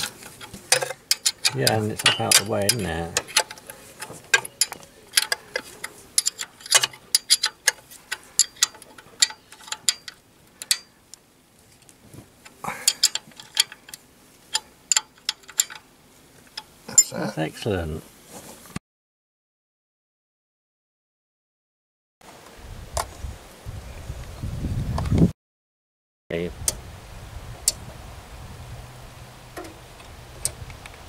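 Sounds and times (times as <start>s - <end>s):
spanner metal clicks: 0.0s - 10.9s, 12.8s - 15.8s.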